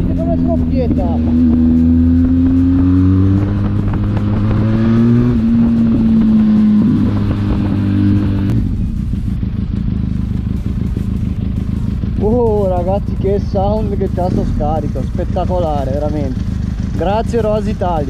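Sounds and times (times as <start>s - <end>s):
motorcycle engine revving and idling: 0.0s - 18.0s.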